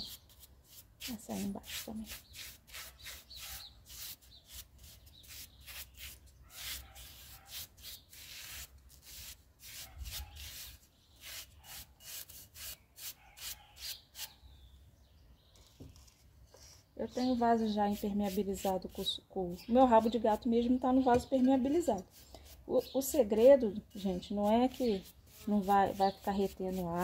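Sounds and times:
paintbrush strokes on clay pot: 0.0s - 14.3s, 16.5s - 27.0s.

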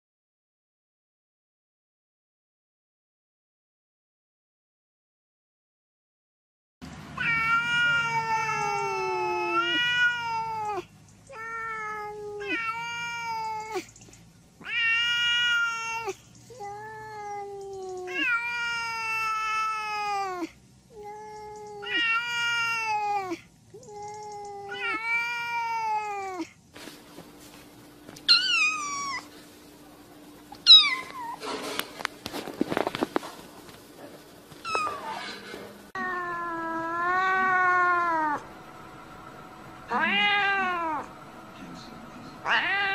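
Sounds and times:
cat meowing long falling meows: 7.2s - 13.9s, 14.6s - 26.5s, 36.0s - 38.4s, 39.9s - 41.2s, 42.4s - 42.9s
steady low hum: 26.6s - 42.9s.

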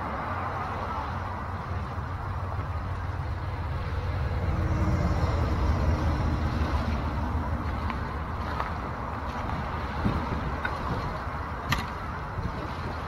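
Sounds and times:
motor engine passing: 0.4s - 10.4s.

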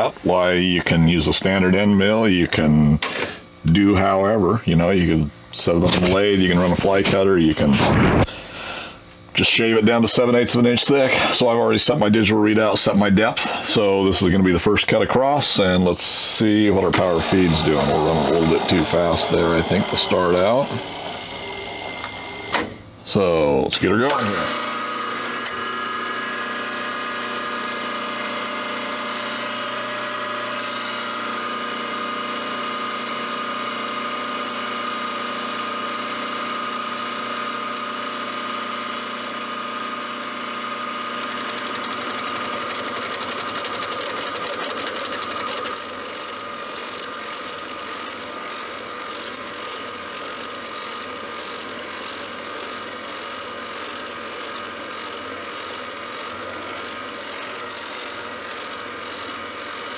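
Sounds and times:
milling machine whine: 0.0s - 59.9s.

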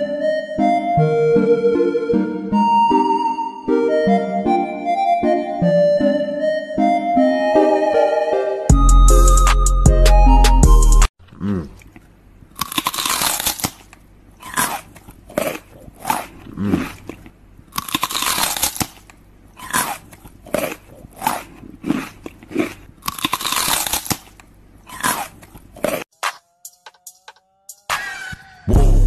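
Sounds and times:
music: 0.0s - 11.1s, 26.2s - 29.0s
crunchy food chewing: 11.2s - 26.1s.

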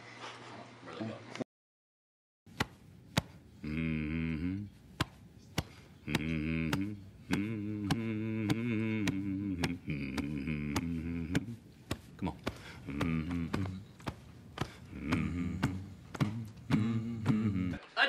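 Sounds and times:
man humming chant: 3.6s - 17.8s.

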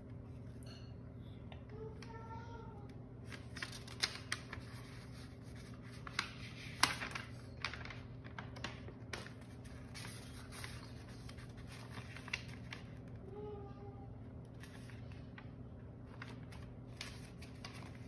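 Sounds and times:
paper rustling and crinkling: 3.2s - 13.3s, 14.4s - 18.0s.

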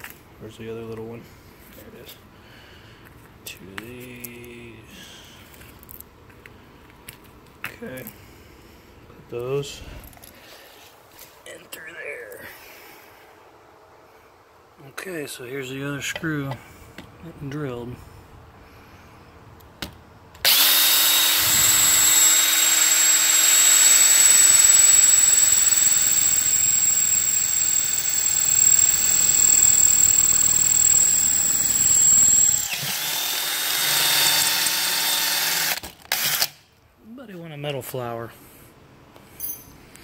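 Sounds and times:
cordless drill boring through metal: 20.4s - 36.5s.

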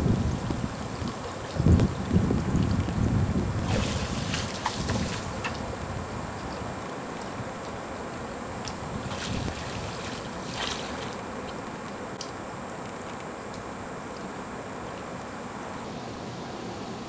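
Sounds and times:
wind on the microphone: 0.0s - 7.6s, 8.5s - 11.1s
river water: 0.0s - 17.0s.

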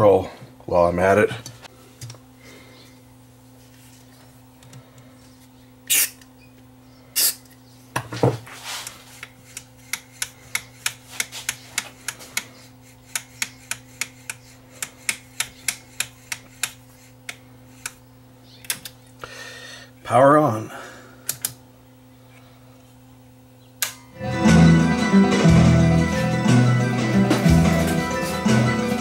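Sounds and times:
volume control clicking: 23.8s - 24.1s.

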